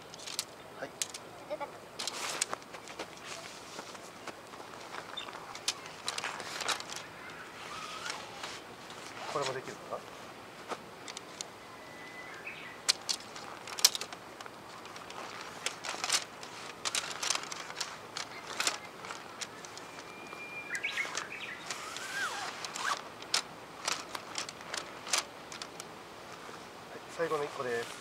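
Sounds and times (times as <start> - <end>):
tent fabric and poles rustling: 0.0 - 28.0
songbird whistling: 5.1 - 5.3, 11.5 - 12.8, 19.8 - 22.4.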